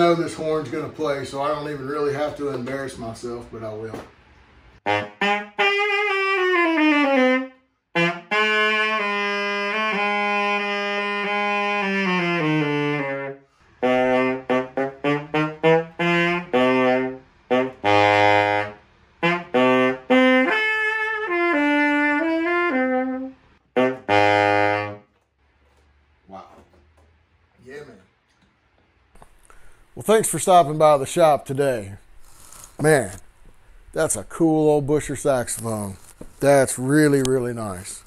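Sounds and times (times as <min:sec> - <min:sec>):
tenor saxophone playing solo: 0:04.8 - 0:25.1.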